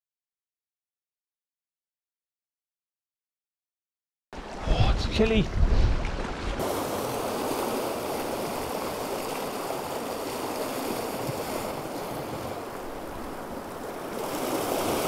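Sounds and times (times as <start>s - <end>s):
surf washing over rocks: 4.4s - 15.0s.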